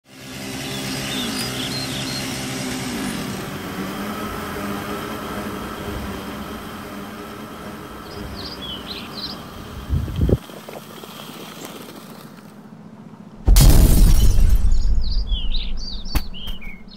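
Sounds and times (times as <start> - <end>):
string trimmer engine: 0.0 - 12.5
bird chirps: 0.6 - 2.4, 8.0 - 9.5, 14.6 - 16.9.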